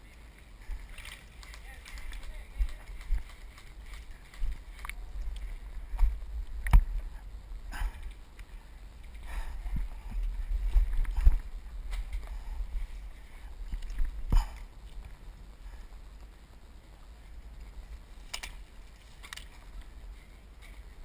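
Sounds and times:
wind buffeting microphone: 0:00.6 - 0:16.6.

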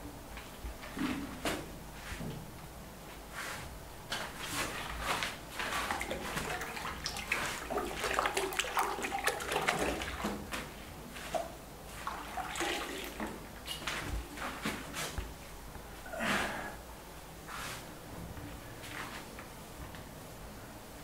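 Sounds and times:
hands squelching wet paint: 0:04.4 - 0:15.2.

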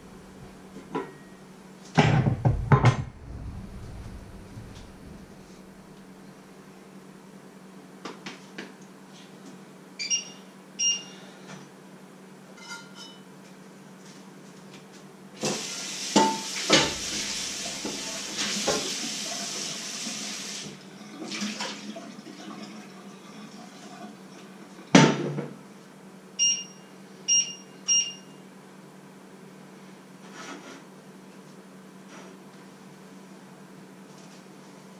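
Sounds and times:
steady low hum: 0:00.0 - 0:07.8
loud knock: 0:02.0 - 0:05.4
kitchen tap running: 0:15.4 - 0:23.0.

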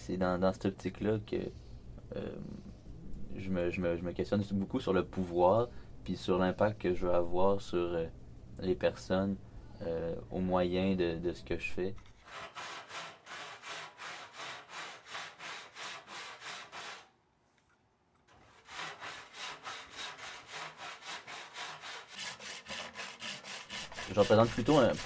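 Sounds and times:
hand saw cutting wood: 0:12.2 - 0:17.1, 0:18.3 - 0:25.0.

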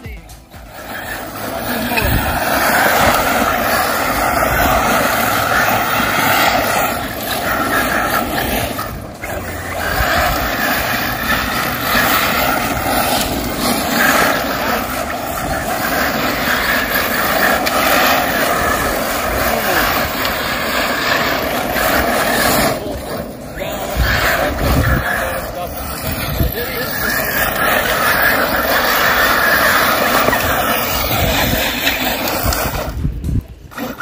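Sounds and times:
electric motors running at speed: 0:00.0 - 0:34.0
tyres churning loose dirt: 0:00.0 - 0:34.0.

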